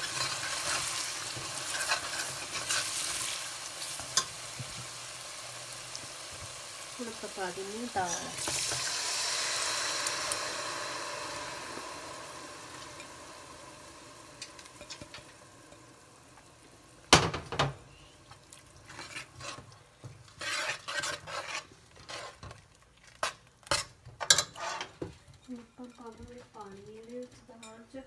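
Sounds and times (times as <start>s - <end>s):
lentils sizzling in hot oil: 0.0s - 26.1s
metal ladle scraping pot: 18.8s - 19.7s, 20.3s - 22.6s, 23.2s - 25.0s.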